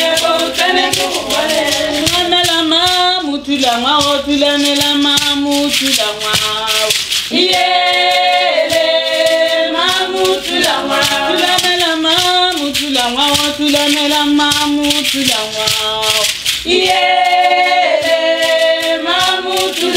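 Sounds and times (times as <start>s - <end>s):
group singing in harmony: 0.0s - 3.0s, 3.7s - 15.1s, 16.1s - 19.9s
ankle rattles shaking: 0.0s - 19.9s.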